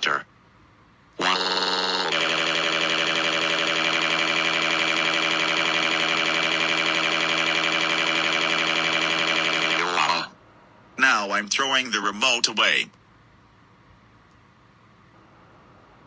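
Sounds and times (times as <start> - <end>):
buzzy warbling electronic tone: 1.2 - 10.3.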